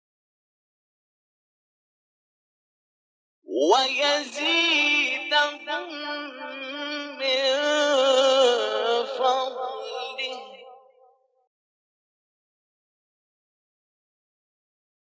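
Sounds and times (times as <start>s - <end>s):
man chanting melismatic recitation: 3.5s - 10.7s.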